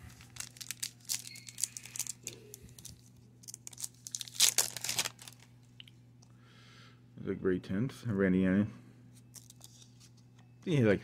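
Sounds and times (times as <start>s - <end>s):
foil wrapper crinkling and tearing: 0.0s - 5.5s.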